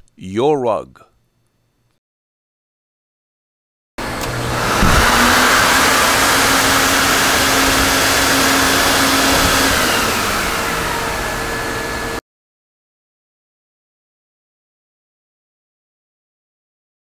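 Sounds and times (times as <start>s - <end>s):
vacuum suction rushing: 4.0s - 12.2s.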